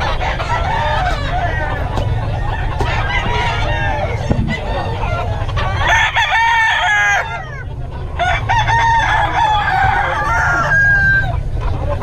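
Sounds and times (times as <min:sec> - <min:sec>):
steady low rumble: 0:00.0 - 0:05.9
roosters crowing: 0:00.0 - 0:12.0.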